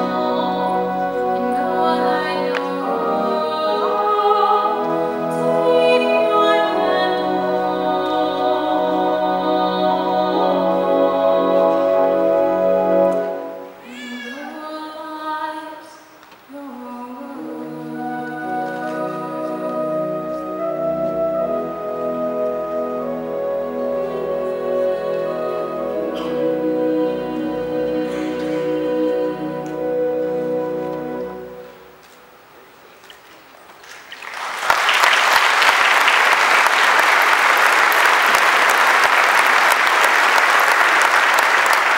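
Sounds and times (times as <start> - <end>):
pipe organ chords: 0.0 - 13.8, 17.4 - 32.3
woman singing with vibrato: 0.0 - 31.8
audience applause: 33.9 - 41.9.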